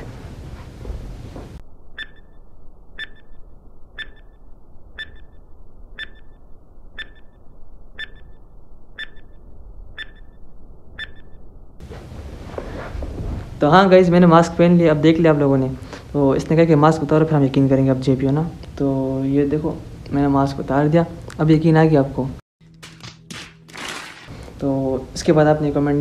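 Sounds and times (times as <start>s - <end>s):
short high beeps: 2.0s - 5.4s, 6.0s - 7.4s, 8.0s - 9.4s, 10.0s - 10.4s, 11.0s - 11.4s.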